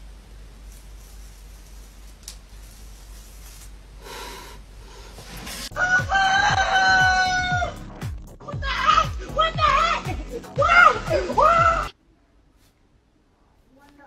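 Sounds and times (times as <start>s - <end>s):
rooster crowing: 5.7s - 7.8s
music with deep bass beat: 5.8s - 11.9s.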